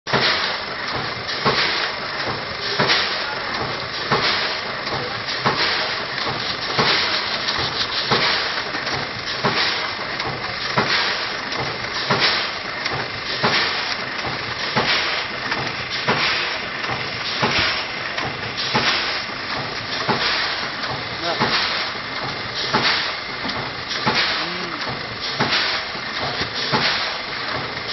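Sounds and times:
packing machine hiss: 0.1s - 27.9s.

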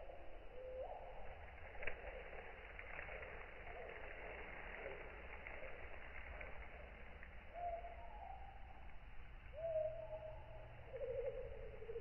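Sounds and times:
owl hooting: 9.5s - 12.0s.

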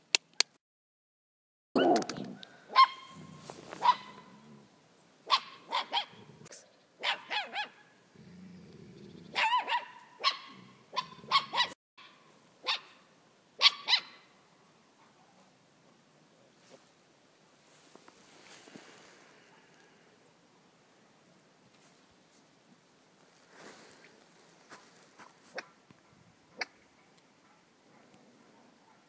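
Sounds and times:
dogs barking and yelping: 1.8s - 4.4s, 5.2s - 7.8s, 9.0s - 13.0s, 13.6s - 14.2s, 25.2s - 29.0s
dogs growling: 8.2s - 9.5s.

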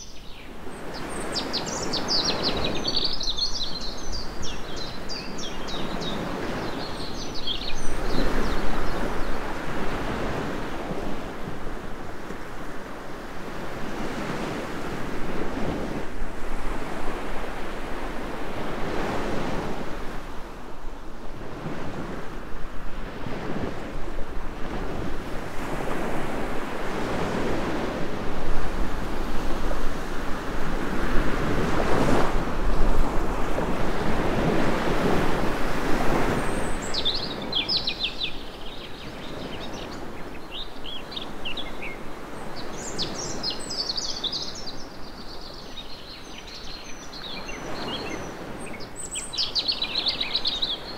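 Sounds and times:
birds chirping: 0.0s - 10.4s, 35.2s - 50.9s
surf washing onto beach: 0.5s - 45.1s.

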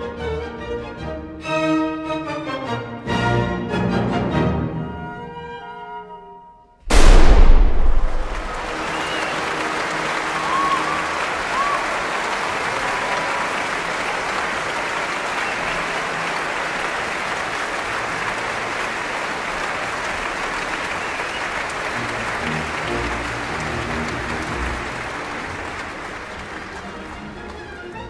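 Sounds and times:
audience applause: 8.1s - 28.0s
low orchestral notes: 21.9s - 28.0s.

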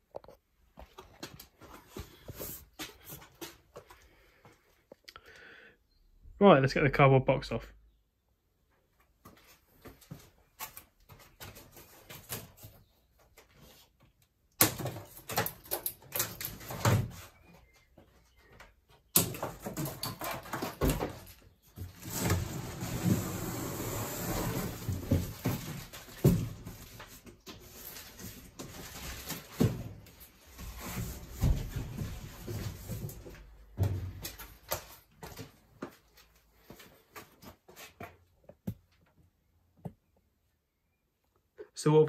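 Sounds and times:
cardboard box scraping: 22.0s - 25.9s.

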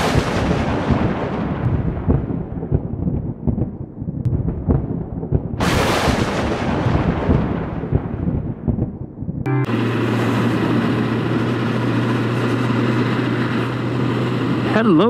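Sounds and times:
sharp thunder crack: 0.0s - 11.8s
thunder rumbling: 0.0s - 14.6s.

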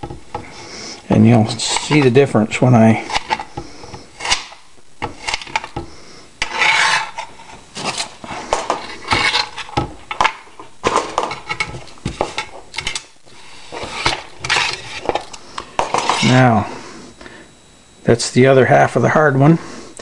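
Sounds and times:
knife scraping cutting board: 1.5s - 2.2s, 3.0s - 5.8s, 6.4s - 9.8s, 11.2s - 16.4s.

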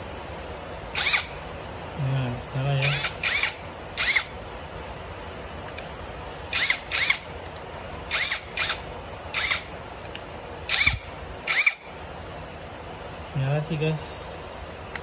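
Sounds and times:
impact driver whining: 0.9s - 1.4s, 2.8s - 4.4s, 6.5s - 11.9s.

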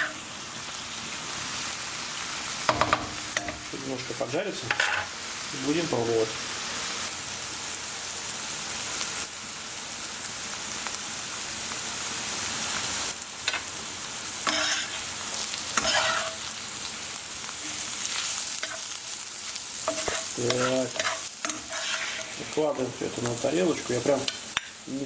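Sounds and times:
scraping in a frying pan: 0.0s - 0.3s, 4.6s - 5.2s, 14.4s - 24.9s
mushroom sizzling in oil: 0.0s - 25.0s.

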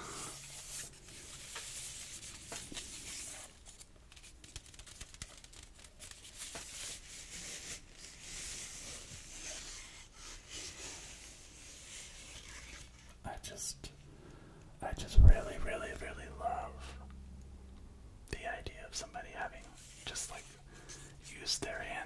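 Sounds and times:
fingers scratching wicker: 0.3s - 13.2s.

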